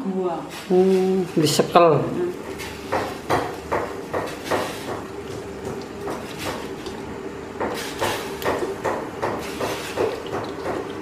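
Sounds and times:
sharp knocking: 2.9s - 6.7s, 7.6s - 10.8s.

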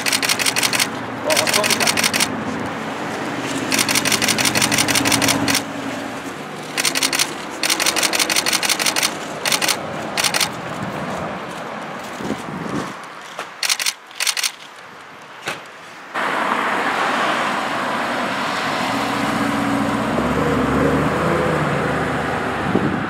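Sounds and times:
camera shutters clicking rapidly: 0.0s - 2.4s, 3.6s - 5.7s, 6.6s - 10.6s, 13.0s - 14.9s.

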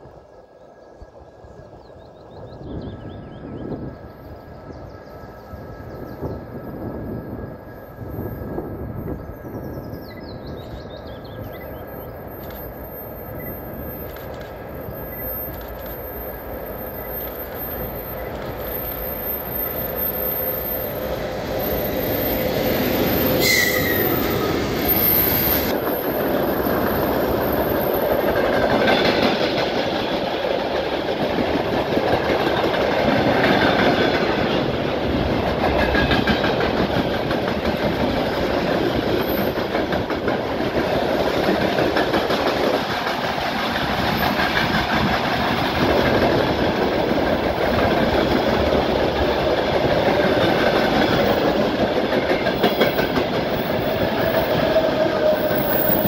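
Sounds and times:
electric locomotive passing: 0.0s - 56.0s
wheels clacking over rail joints: 21.0s - 56.0s.

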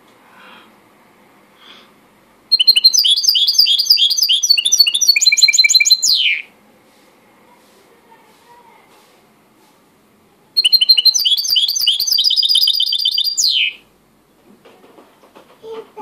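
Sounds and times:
songbird chirping and trilling: 2.5s - 6.5s, 10.6s - 13.9s.

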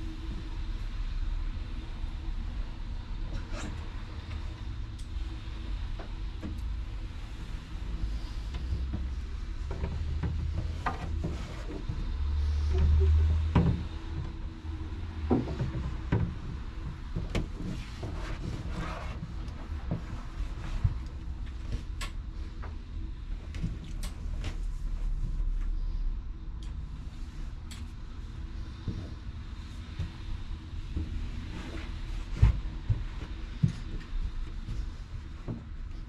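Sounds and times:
street traffic rumble: 0.0s - 36.0s
light knocks and rustles: 7.4s - 22.9s.

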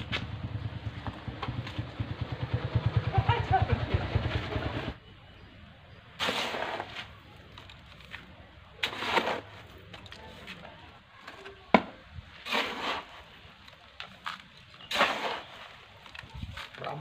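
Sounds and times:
soil pouring from a trowel: 6.2s - 10.6s, 12.3s - 17.0s.

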